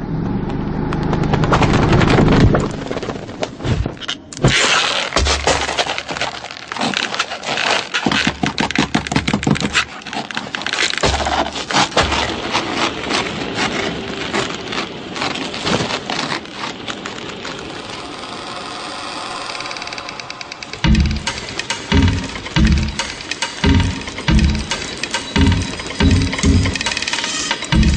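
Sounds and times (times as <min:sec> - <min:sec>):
low hum: 0:00.0 - 0:04.0, 0:17.7 - 0:27.0
knitting needles clicking: 0:19.5 - 0:27.7.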